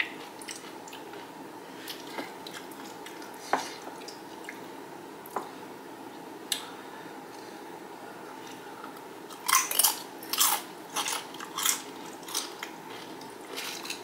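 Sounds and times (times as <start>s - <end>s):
tortilla chip crunching: 9.3s - 14.0s.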